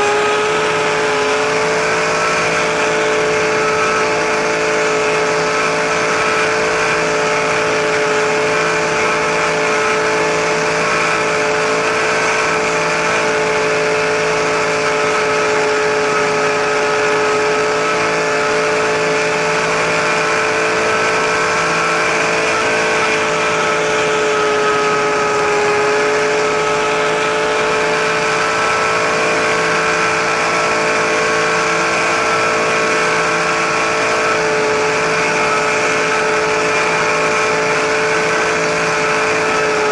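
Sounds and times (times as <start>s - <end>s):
rc helicopter motor whine: 0.0s - 39.9s
rotor blades rushing: 0.0s - 39.9s.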